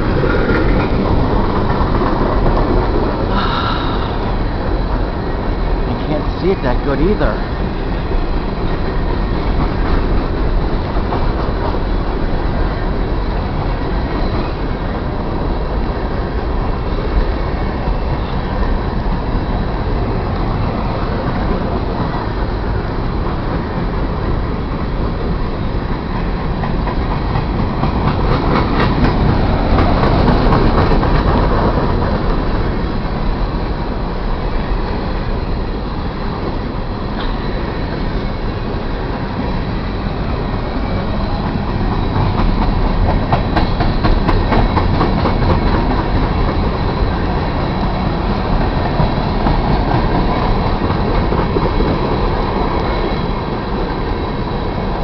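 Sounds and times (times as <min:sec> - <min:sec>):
train wheels rumbling on rail: 0:00.0 - 0:55.0
wheels clicking over rails: 0:19.0 - 0:35.0, 0:36.3 - 0:55.0.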